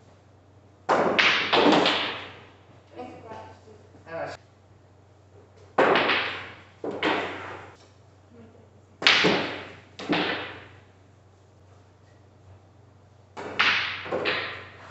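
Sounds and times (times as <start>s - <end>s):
billiard balls clacking: 0.8s - 2.9s, 5.4s - 7.9s, 9.0s - 10.9s, 13.3s - 14.9s.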